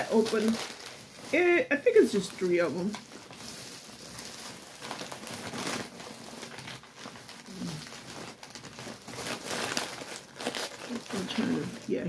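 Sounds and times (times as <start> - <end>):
plastic wrappers crinkling: 0.0 - 12.0.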